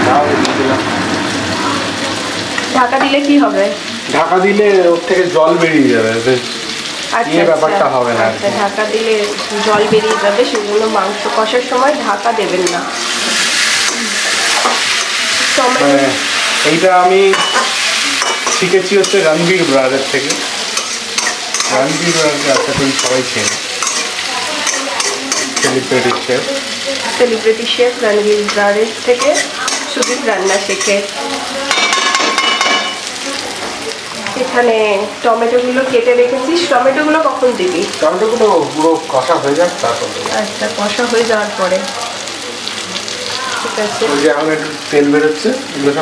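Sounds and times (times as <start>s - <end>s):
meat sizzling in oil: 0.0s - 46.0s
metal spatula scraping a pan: 12.5s - 26.4s, 28.5s - 31.1s.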